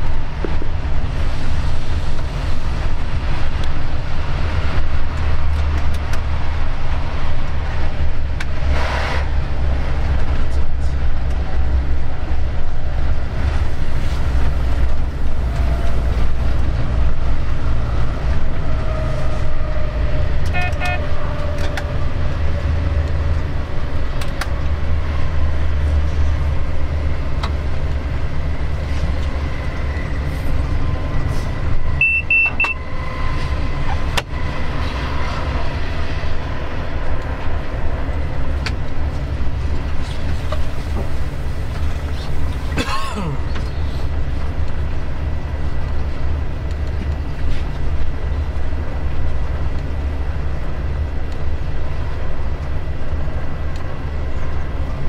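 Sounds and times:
locomotive engine drone: 0.0 - 55.0
wheel and rail noise: 0.0 - 55.0
short horn toot: 20.5 - 21.1
high double beep: 32.0 - 32.8.

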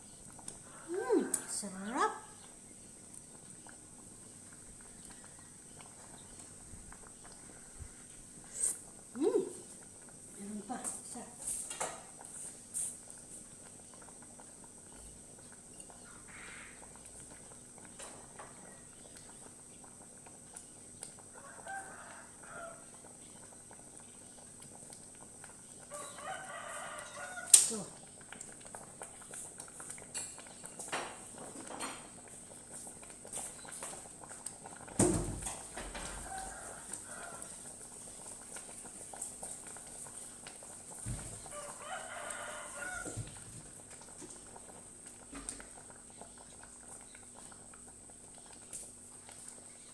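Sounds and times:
pot boiling and bubbling: 0.0 - 49.9
faint chicken calls: 0.6 - 2.5, 4.6 - 6.5, 16.0 - 17.0, 21.2 - 23.6, 25.8 - 27.8, 35.9 - 37.8, 41.0 - 43.4
rooster crowing: 21.3 - 22.9, 25.9 - 27.6, 35.8 - 37.7, 41.4 - 43.4.

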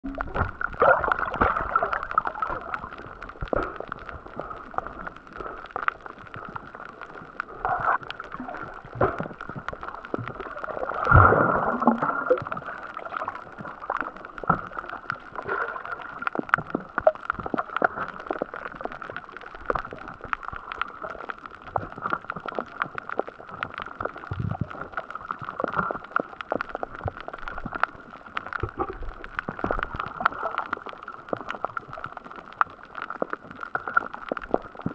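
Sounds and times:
gurgling water surge: 0.0 - 5.6, 7.5 - 14.8
fine clicking underwater: 0.0 - 34.9
muffled underwater hiss: 0.0 - 34.9.

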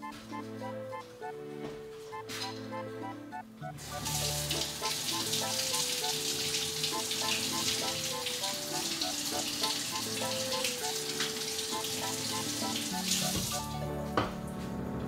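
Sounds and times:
background music with plucked melody: 0.0 - 15.0
water hissing in a saucepan: 3.9 - 13.7.

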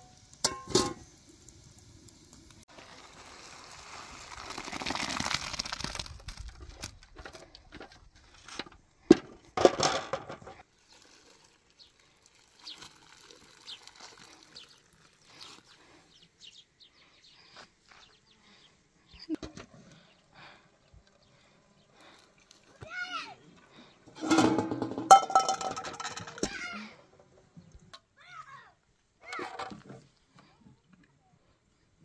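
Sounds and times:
metal cookware knocks: 0.4 - 1.0, 24.2 - 26.4.

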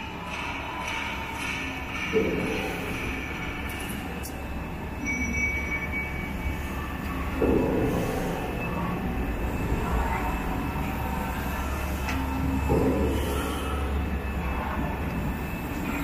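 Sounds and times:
heavy machine running: 0.0 - 16.0.

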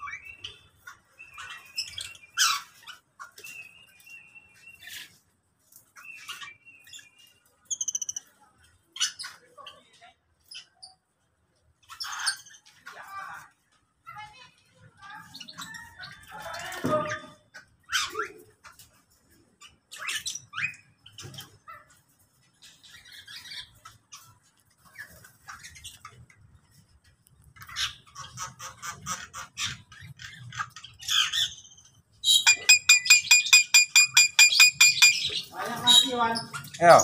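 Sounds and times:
birds chirping and squawking: 0.0 - 5.2, 11.8 - 12.9, 15.2 - 26.8, 27.5 - 37.0
bird fast rattling call: 32.3 - 35.4.

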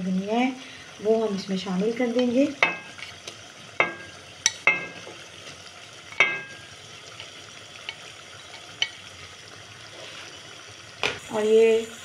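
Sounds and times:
gravy simmering with sizzle: 0.0 - 12.0
utensil clinking against pot: 6.1 - 6.6.

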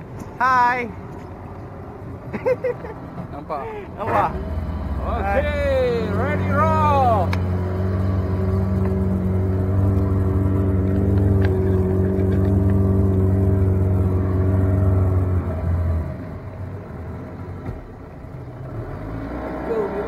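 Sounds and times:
outboard motor running: 4.1 - 14.5.

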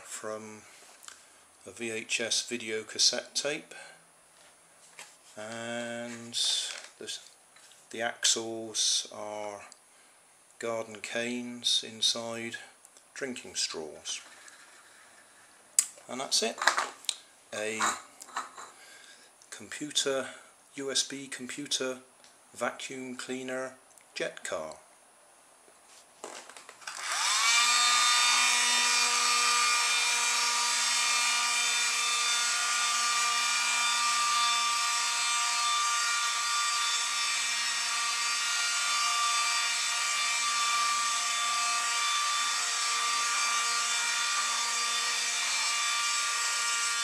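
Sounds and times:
small vacuum motor whining: 26.9 - 47.0.

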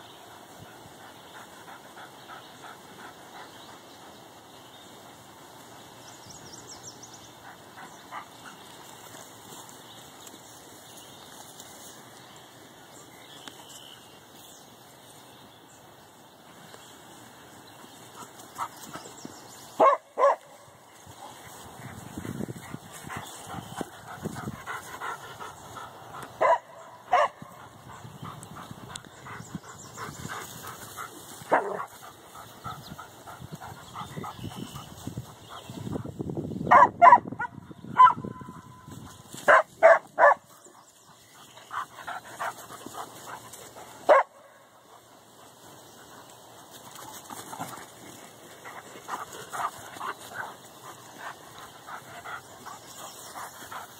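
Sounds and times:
dogs barking: 19.8 - 20.7, 22.7 - 32.2, 36.7 - 38.4, 39.5 - 40.7, 41.7 - 45.1.

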